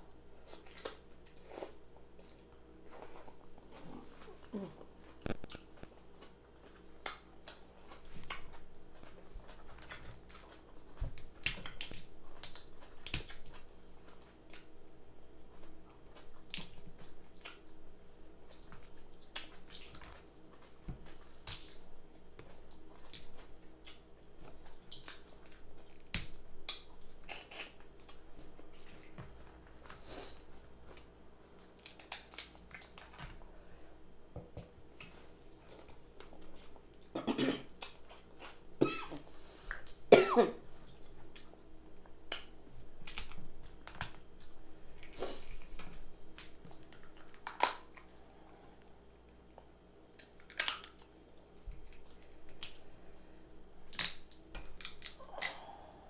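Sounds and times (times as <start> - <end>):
sharp clicks of crab shells: 47.3 - 48.0, 50.2 - 51.0, 53.9 - 55.6.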